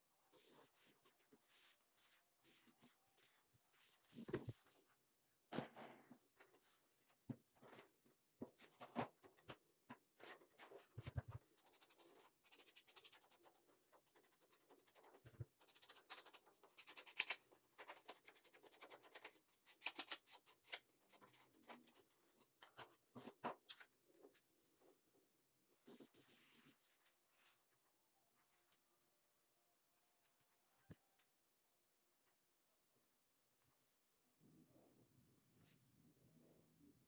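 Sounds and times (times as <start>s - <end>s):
brush scratching on paper: 0.3s - 2.9s.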